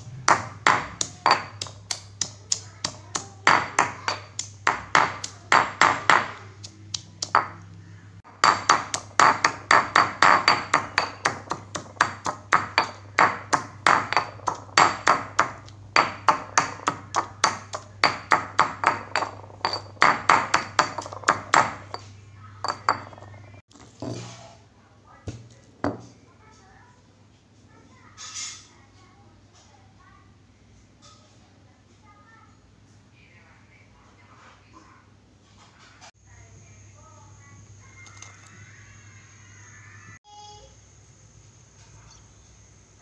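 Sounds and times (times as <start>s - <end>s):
stone pestle pounding in mortar: 0.0s - 7.6s, 8.3s - 22.0s, 22.6s - 23.4s.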